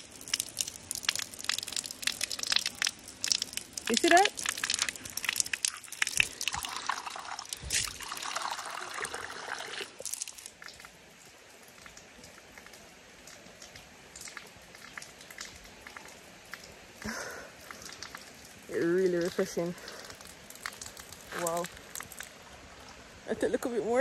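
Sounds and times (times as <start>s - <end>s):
water pouring into cup: 0.0s - 10.7s.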